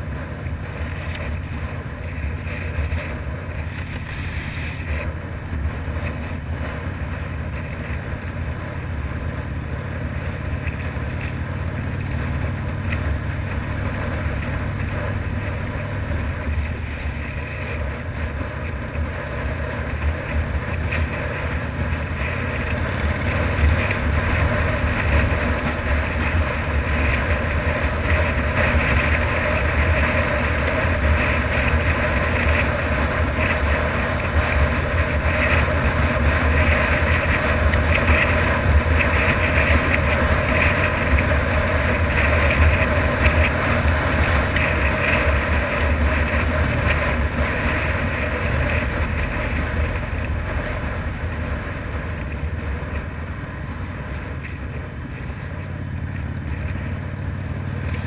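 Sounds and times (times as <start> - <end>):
wind rushing over microphone: 0.0 - 8.8
motorcycle engine running: 0.0 - 58.0.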